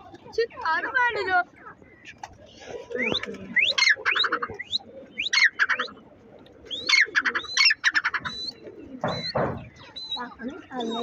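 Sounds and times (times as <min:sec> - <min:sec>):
bird calling shrill notes: 0:06.7 - 0:11.0.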